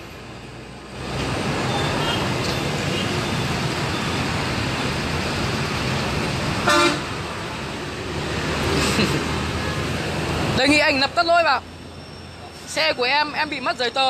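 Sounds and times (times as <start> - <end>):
street traffic with motorbikes: 0.0 - 14.0
vehicle horn toot: 6.6 - 7.1.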